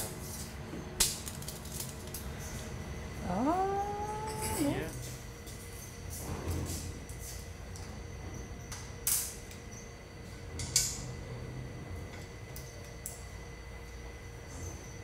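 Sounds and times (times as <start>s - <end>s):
low workshop hum: 0.0s - 15.0s.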